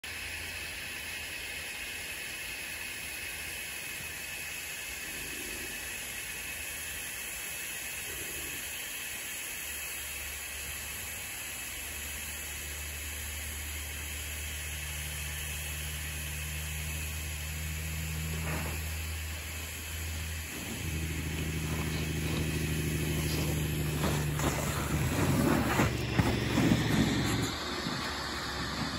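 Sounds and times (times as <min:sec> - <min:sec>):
snowboard scraping packed snow: 0:18.2 - 0:19.3, 0:20.5 - 0:28.9.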